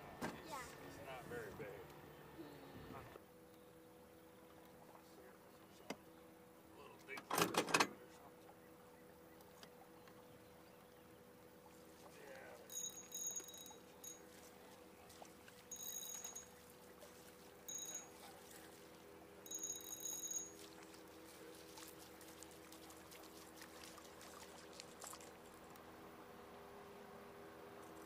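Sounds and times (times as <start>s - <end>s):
boat motor humming: 0.0s - 7.2s, 7.9s - 28.0s
water splashes and drips: 20.0s - 25.8s.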